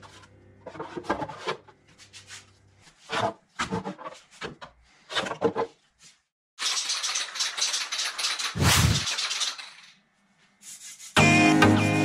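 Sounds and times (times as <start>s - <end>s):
hands rubbing pads: 10.5s - 11.2s.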